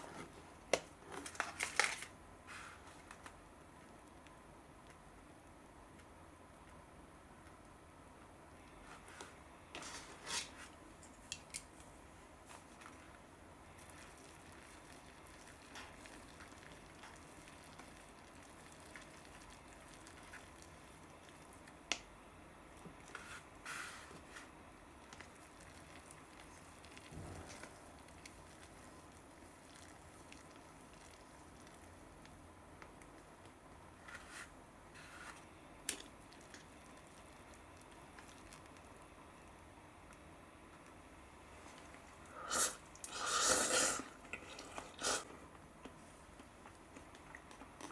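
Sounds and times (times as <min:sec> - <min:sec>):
soft wet stirring of noodles: 0:07.4 - 0:43.1.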